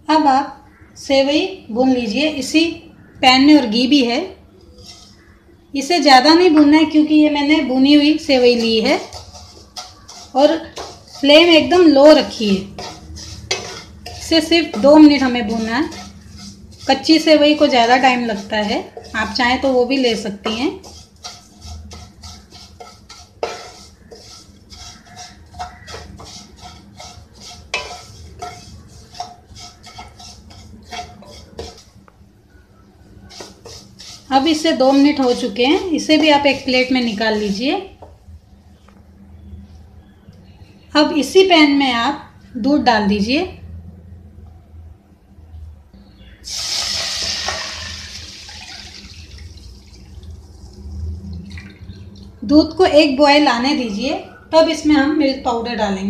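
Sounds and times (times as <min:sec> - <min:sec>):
spatula scraping a pan: 0:04.7 - 0:06.6, 0:07.6 - 0:38.2, 0:46.5 - 0:49.4
milk pouring into a pan: 0:46.5 - 0:52.4.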